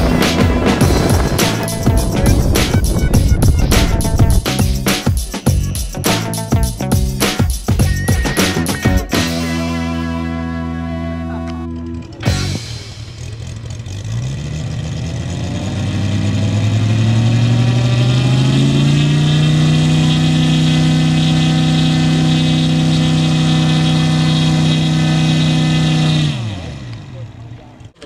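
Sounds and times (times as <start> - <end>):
model airplane engine revving: 11.2 - 28.0.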